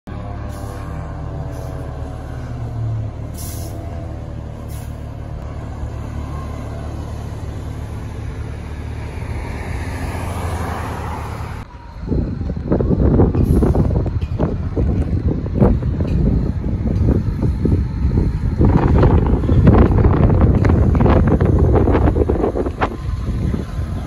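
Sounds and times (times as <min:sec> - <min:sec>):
fire truck engines: 0:00.0 - 0:24.0
car passing close: 0:00.3 - 0:24.0
wind buffeting microphone: 0:08.2 - 0:24.0.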